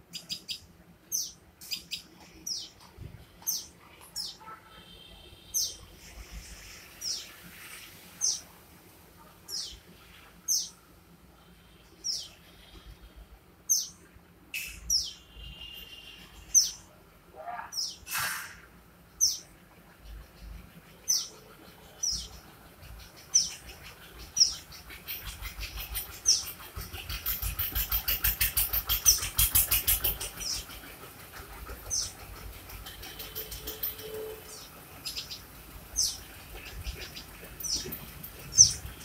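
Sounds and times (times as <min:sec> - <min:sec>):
small bird chirping: 0:00.1 - 0:02.8, 0:10.4 - 0:10.8, 0:14.6 - 0:16.9, 0:20.2 - 0:30.8, 0:32.8 - 0:39.0
rapid loud clicks: 0:25.8 - 0:34.0.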